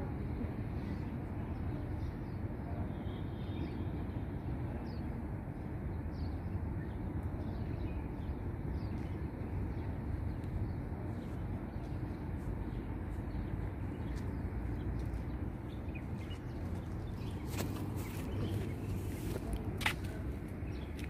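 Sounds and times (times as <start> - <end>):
small birds chirping: 5.9 - 21.0.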